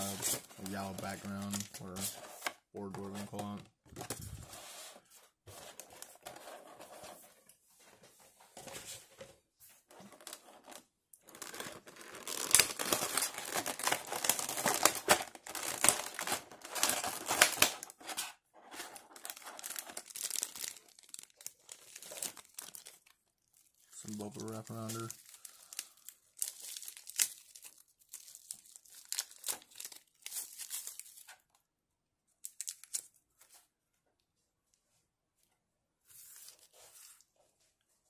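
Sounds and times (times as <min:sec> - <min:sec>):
plastic packaging crinkling: 0:00.0 - 0:02.0, 0:10.1 - 0:31.4, 0:32.4 - 0:33.2.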